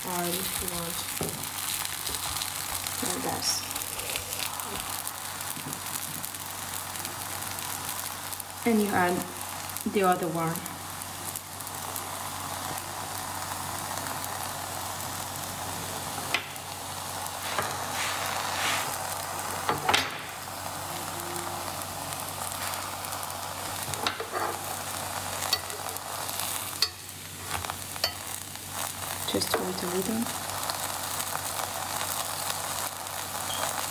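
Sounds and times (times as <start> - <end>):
dough sizzling on a griddle: 0.0 - 33.9.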